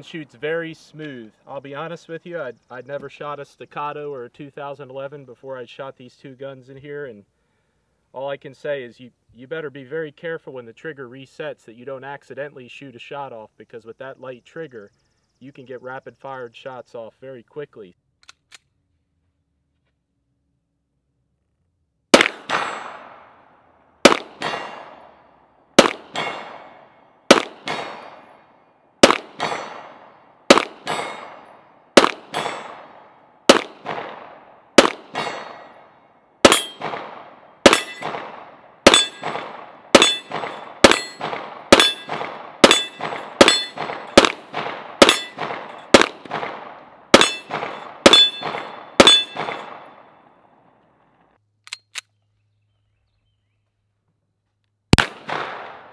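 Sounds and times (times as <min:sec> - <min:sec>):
pistol shots: 0:22.1 - 0:23.4, 0:24.0 - 0:25.2, 0:25.8 - 0:50.5, 0:54.9 - 0:55.9
clang of hit steel targets: 0:22.2 - 0:23.0, 0:24.1 - 0:25.0, 0:25.8 - 0:26.7, 0:29.1 - 0:29.9, 0:30.5 - 0:32.8, 0:34.8 - 0:35.8, 0:36.5 - 0:37.0, 0:37.7 - 0:38.2, 0:38.9 - 0:44.4, 0:45.0 - 0:46.2, 0:47.2 - 0:49.9.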